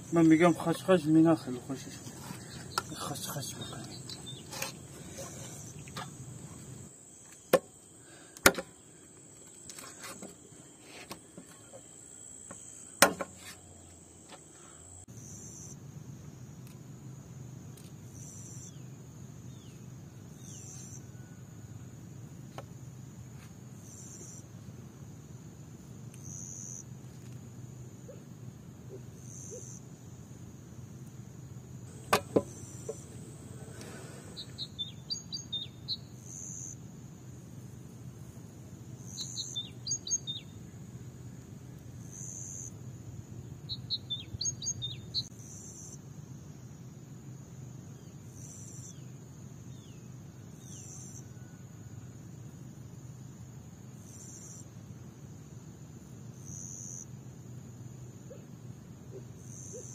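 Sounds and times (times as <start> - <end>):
crickets chirping: 0.0 - 59.9
knife striking wooden cutting board: 13.0 - 13.4.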